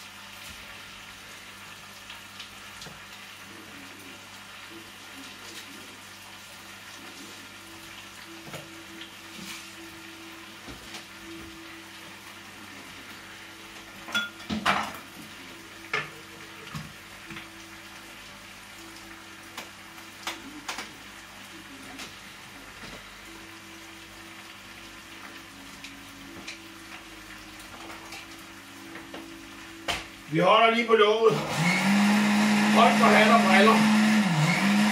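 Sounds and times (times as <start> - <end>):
low sizzle in pan: 0.0 - 31.3
utensils and dishes clinking: 14.0 - 15.2.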